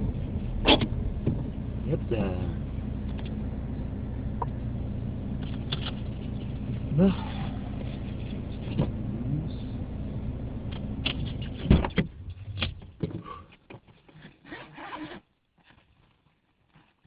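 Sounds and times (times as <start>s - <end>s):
low hum inside car: 0.0s - 13.5s
scraping and rubbing: 5.4s - 9.0s.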